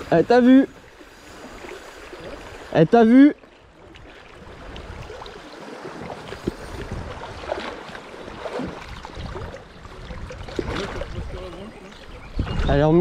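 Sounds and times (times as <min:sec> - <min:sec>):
river water rushing: 0:00.0 - 0:12.3
fish splashing: 0:03.4 - 0:12.2.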